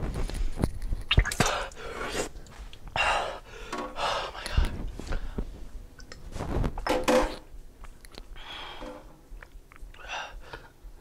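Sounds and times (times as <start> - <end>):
man gasping and breathing hard: 2.9 - 5.5, 8.4 - 9.2.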